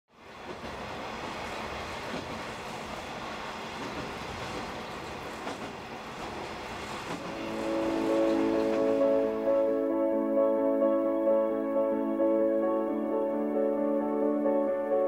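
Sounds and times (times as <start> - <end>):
train running on rails: 0.2 - 14.7
music with held chords: 7.3 - 15.0.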